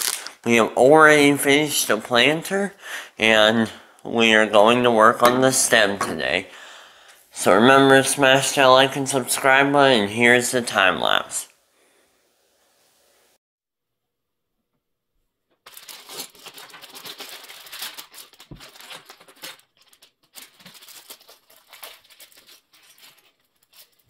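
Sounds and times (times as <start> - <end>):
plastic bag crinkling: 0.0 - 0.4, 15.6 - 24.0.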